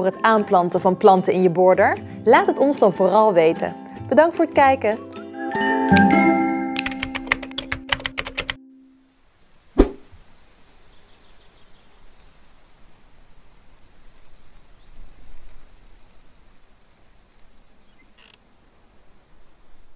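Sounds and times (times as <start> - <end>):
small bird chirps: 16.9 - 18.4.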